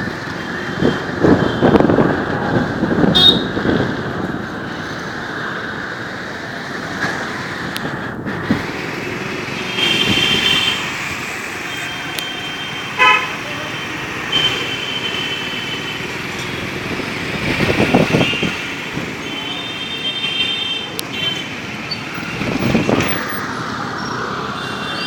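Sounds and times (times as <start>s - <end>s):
engines and road noise: 0.0s - 25.0s
vehicle horns honking: 3.1s - 3.6s, 11.7s - 15.9s.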